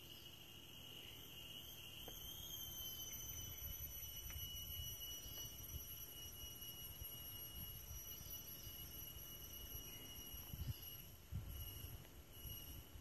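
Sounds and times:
high-pitched insect trill: 0.0 - 13.0.

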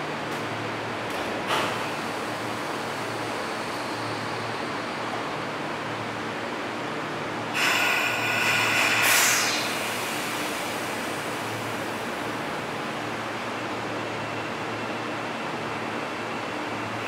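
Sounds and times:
loud hiss of released air: 7.6 - 11.7.

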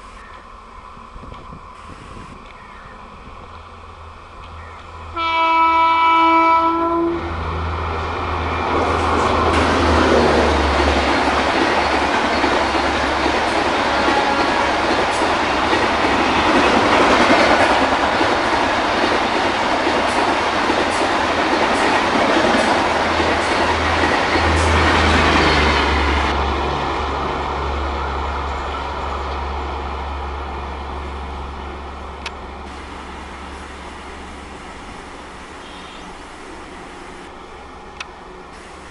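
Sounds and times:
train wheels rumbling: 0.0 - 38.9
wheels clacking over rail joints: 8.7 - 26.1.

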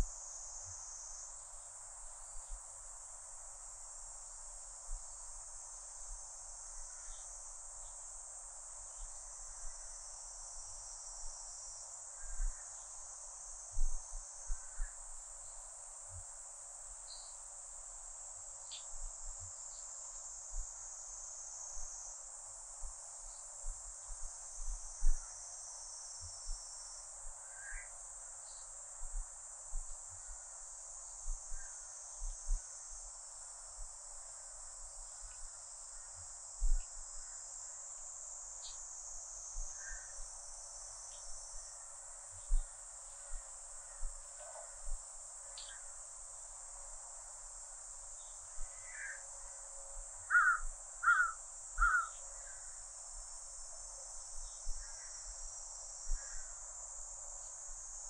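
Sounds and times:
cicadas buzzing: 0.0 - 58.0
bird chirps: 50.3 - 52.2.

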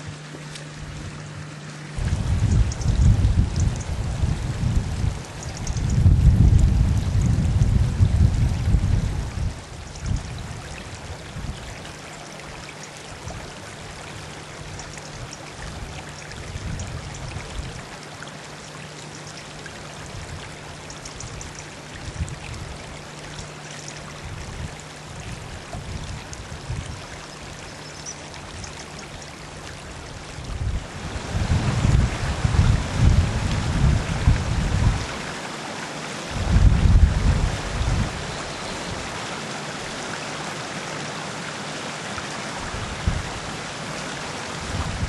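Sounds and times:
stream flowing over stones: 0.0 - 45.0
wind buffeting microphone: 2.0 - 12.0, 12.6 - 17.9, 20.0 - 23.0, 24.2 - 35.3, 36.3 - 39.2, 42.6 - 43.6, 44.5 - 45.0.

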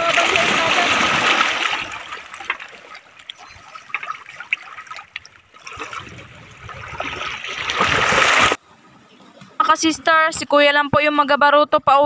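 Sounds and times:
water lapping among rocks: 0.0 - 8.6.

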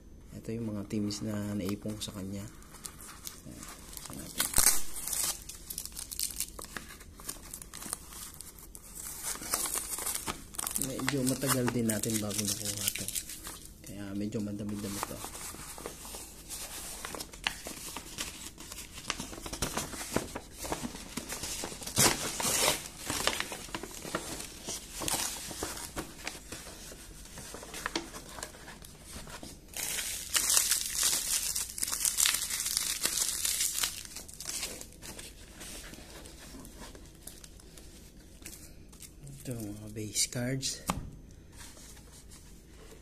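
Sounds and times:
paper tearing and crumpling: 2.9 - 13.6, 14.7 - 28.6.

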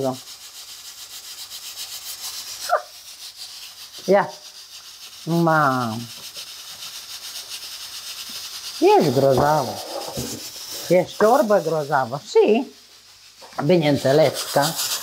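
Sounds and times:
hot pot crackling: 0.0 - 15.0
steady high hiss: 0.0 - 15.0
spoon stirring in steel pot: 8.2 - 12.8.

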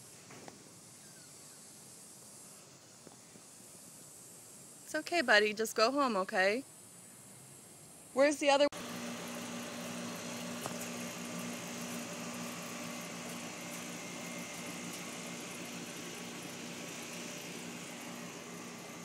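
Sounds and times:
air conditioner unit humming: 8.2 - 19.0
fan rushing: 8.2 - 19.0.

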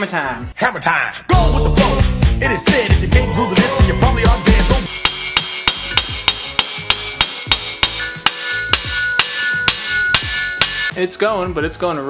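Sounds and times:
hammer striking metal: 4.9 - 11.0.

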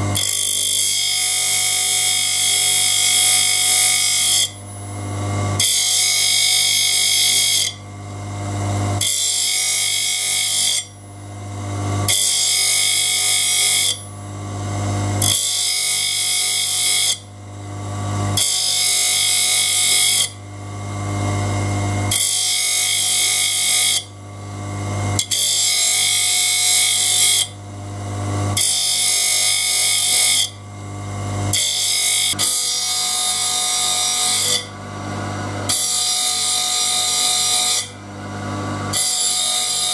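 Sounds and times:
grinding wheel on saw teeth: 0.0 - 7.8, 8.5 - 11.1, 12.0 - 14.1, 14.7 - 17.3, 18.2 - 20.4, 22.1 - 24.1, 25.2 - 27.6, 28.5 - 30.6, 31.5 - 39.9.

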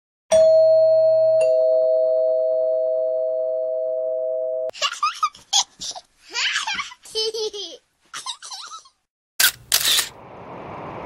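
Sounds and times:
baby giggling: 4.7 - 9.0.

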